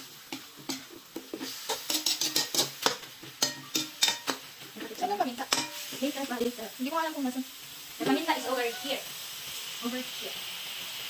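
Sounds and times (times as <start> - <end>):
food sizzling: 0.0 - 11.0
metal spatula scraping a wok: 0.3 - 6.4.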